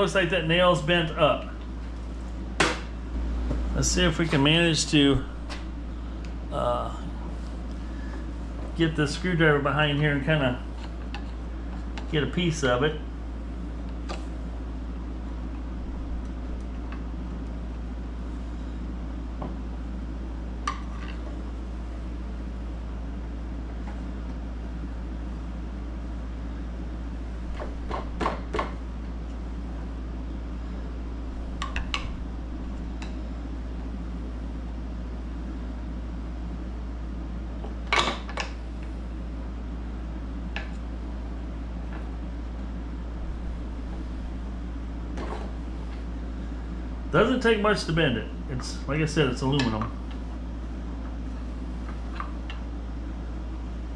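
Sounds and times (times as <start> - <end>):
steady low hum: 0.0 - 53.9.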